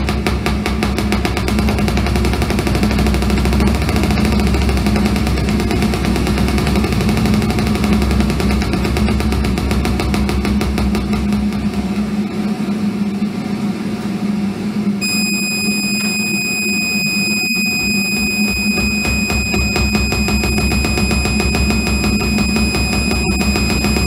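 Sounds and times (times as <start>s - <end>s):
steady low hum: 0.0s - 24.0s
high steady whine: 14.6s - 24.0s
fast-pulsing electronic noise: 15.0s - 24.0s.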